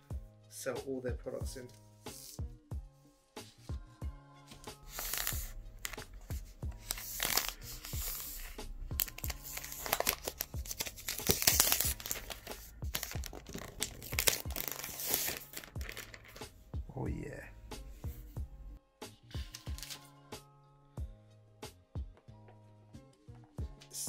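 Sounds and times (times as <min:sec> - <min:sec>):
background music with steady beat: 0:00.0 - 0:24.0
plastic film peeling and crinkling: 0:04.7 - 0:16.5, 0:19.5 - 0:20.0.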